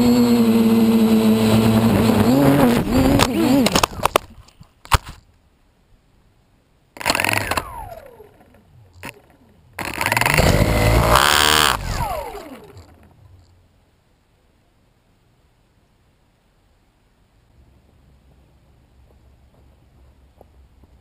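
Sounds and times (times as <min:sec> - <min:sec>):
quadcopter motors whining: 0:00.0 - 0:04.3, 0:07.0 - 0:13.4
sharp click: 0:07.0 - 0:08.1.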